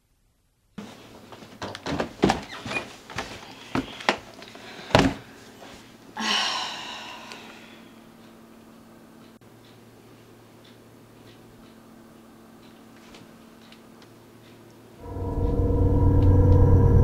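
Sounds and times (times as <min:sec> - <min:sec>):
footsteps on wooden stairs: 0:00.8 - 0:05.3
low hum: 0:15.0 - 0:17.0.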